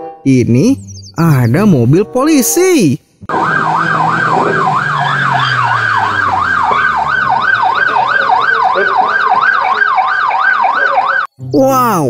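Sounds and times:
police siren yelp: 3.3s - 11.3s.

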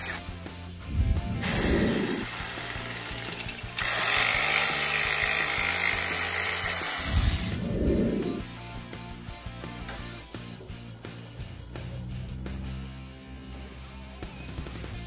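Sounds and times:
background music: 0.0s - 15.0s
jigsaw cutting plank: 1.4s - 7.6s.

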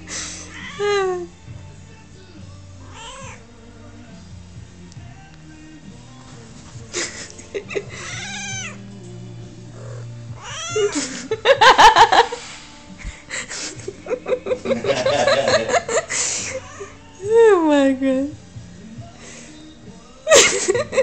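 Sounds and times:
cat meowing and yowling: 0.4s - 0.8s, 2.9s - 3.4s, 8.1s - 8.8s, 10.4s - 10.9s.

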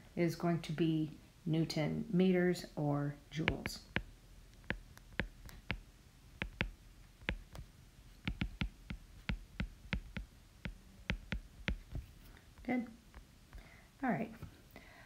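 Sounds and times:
stylus clicking on glass screen: 3.4s - 12.0s.

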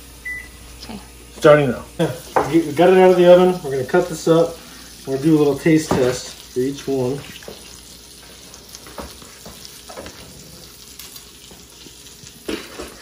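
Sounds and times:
meat sizzling in a skillet: 1.9s - 13.0s.

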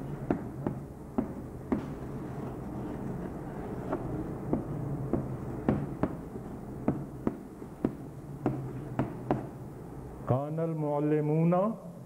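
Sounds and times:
chalk tapping on blackboard: 0.0s - 9.6s.

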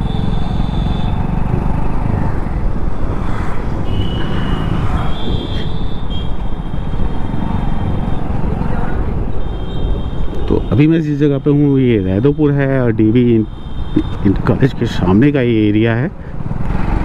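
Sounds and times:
motorcycle engine running: 0.0s - 2.2s
road and wind rumble: 0.0s - 17.0s.

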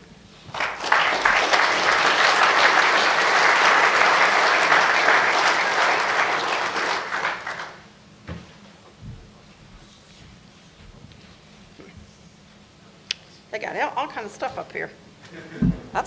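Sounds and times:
audience applauding: 0.5s - 7.9s.

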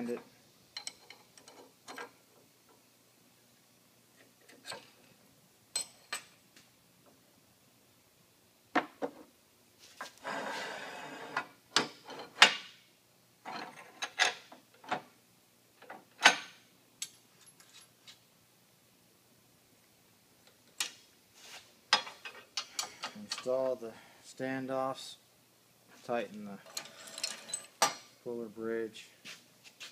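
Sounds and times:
metal scraping rub: 10.2s - 11.4s.

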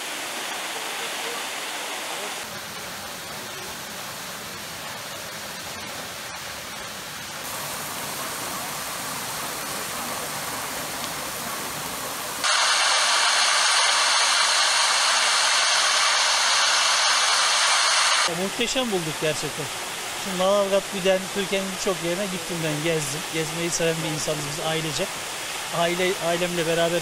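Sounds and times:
waterfall rushing: 0.0s - 3.7s, 7.5s - 27.0s.

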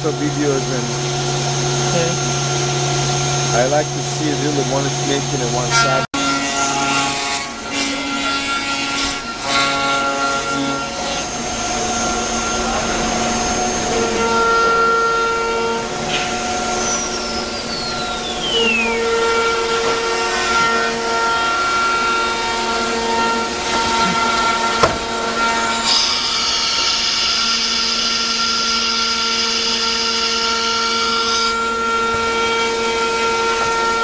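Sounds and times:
wood cutting noise: 0.0s - 34.0s
wood router spindle whine: 0.0s - 34.0s
high whine falling in pitch: 10.4s - 25.8s.

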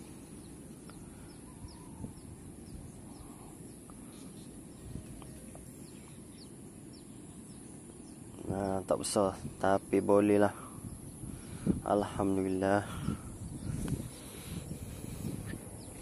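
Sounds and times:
wind rumble on microphone: 0.0s - 7.0s, 8.0s - 16.0s
faint bird chirps: 0.0s - 9.2s.

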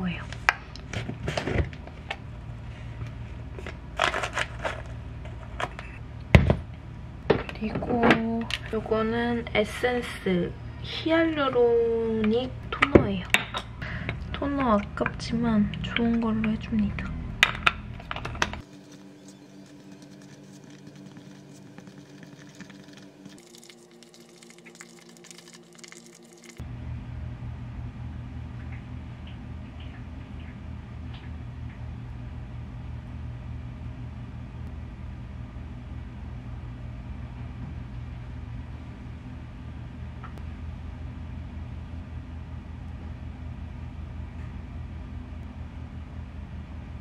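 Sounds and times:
scoop scraping powder: 18.7s - 26.6s.

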